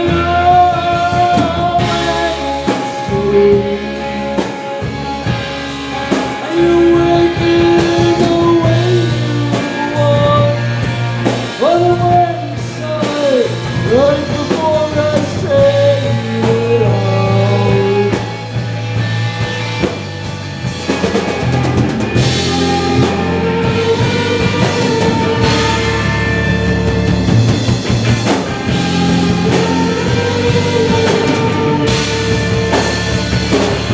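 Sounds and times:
woman singing: 0.0 - 4.3, 6.4 - 10.8, 11.6 - 18.3
live rock band playing: 0.0 - 33.9.

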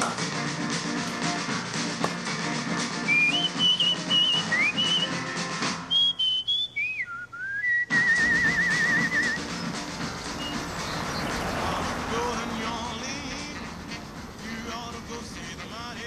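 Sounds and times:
band with drums: 0.0 - 6.2, 7.9 - 11.3
person whistling a tune: 3.0 - 10.7.

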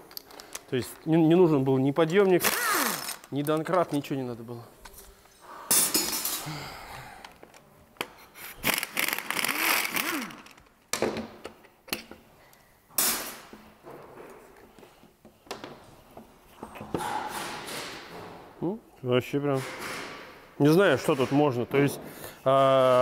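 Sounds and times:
impact wrench running: 2.4 - 3.3, 8.6 - 10.6.

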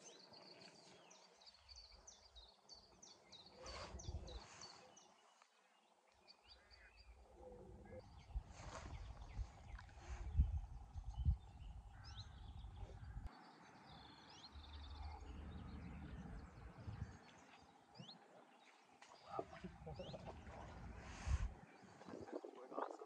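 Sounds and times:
small birds chirping: 0.0 - 23.0
wind rumbling on microphone: 3.6 - 4.7, 7.0 - 13.3, 14.8 - 17.4, 19.3 - 23.0.

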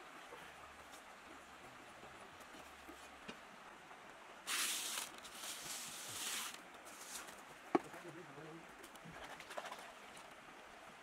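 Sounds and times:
gravel scraping across metal sieve: 4.5 - 7.3.

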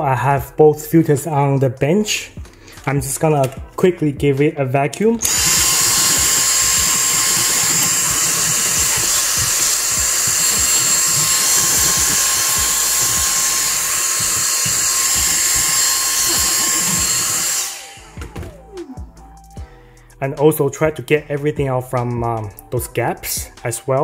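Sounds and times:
handheld vacuum whining: 5.2 - 19.1
vacuum winding down: 5.2 - 19.4.

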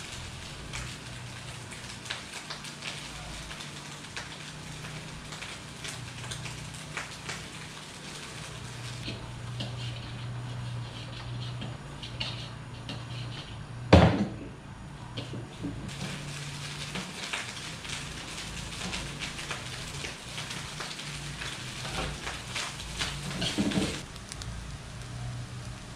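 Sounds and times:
gas burner low hum: 0.0 - 25.9
metal spatula scraping wok: 7.8 - 13.8, 15.2 - 24.0.

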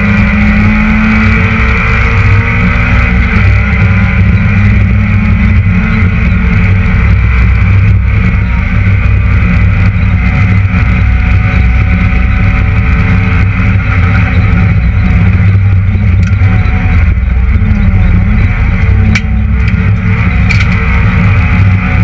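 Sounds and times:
car engine at high revs: 0.0 - 22.0.

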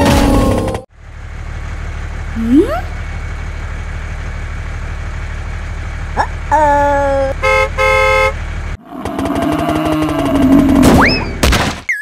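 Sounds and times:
tractor engine chugging: 0.9 - 10.4
vehicle horn honking: 7.4 - 8.4.

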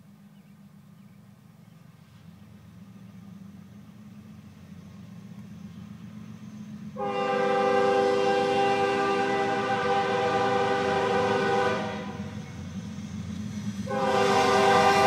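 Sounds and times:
train rumble: 0.0 - 15.0
locomotive air horn blast: 7.0 - 12.4, 13.9 - 15.0.

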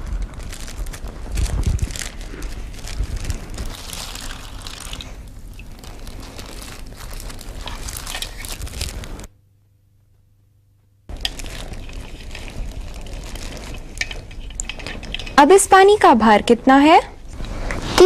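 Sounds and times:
rustling crinkling handling noise: 0.0 - 9.3, 11.1 - 16.0.

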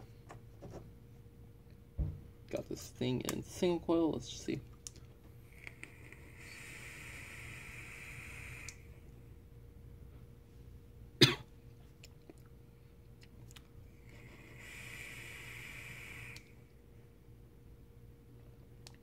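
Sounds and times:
vape airflow hiss: 5.4 - 9.2, 13.9 - 16.8
person coughing: 11.2 - 11.5.

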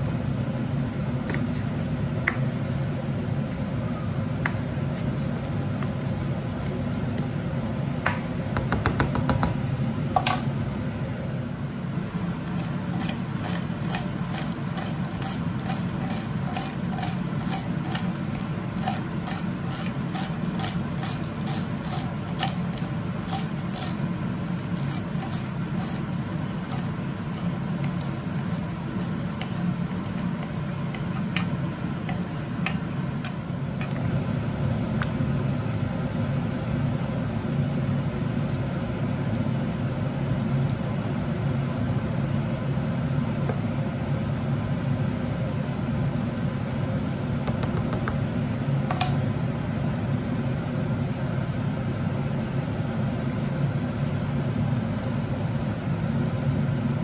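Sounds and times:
steady low hum: 9.5 - 57.0
knife chopping on cutting board: 12.4 - 24.0.

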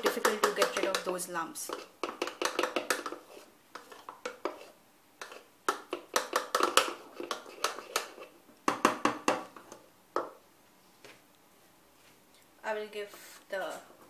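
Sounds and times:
spoon tapping plastic jug: 0.0 - 3.2, 5.2 - 9.6.

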